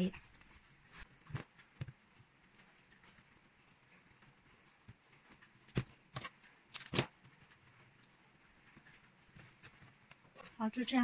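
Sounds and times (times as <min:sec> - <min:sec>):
plastic strap clicks and crinkles: 0:04.9 - 0:08.1.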